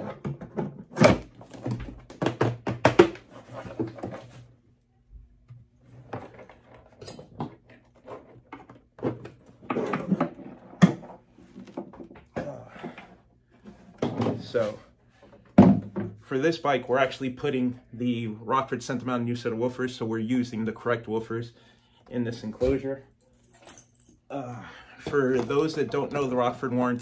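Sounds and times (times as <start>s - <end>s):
knocks and clunks of speakers: 15.5s - 16.2s.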